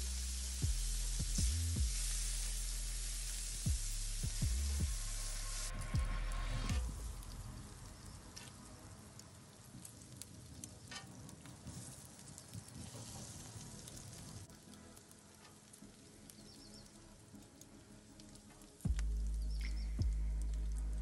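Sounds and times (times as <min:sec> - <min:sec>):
bacon sizzling on a griddle: 0:00.0 - 0:04.4, 0:09.2 - 0:16.9.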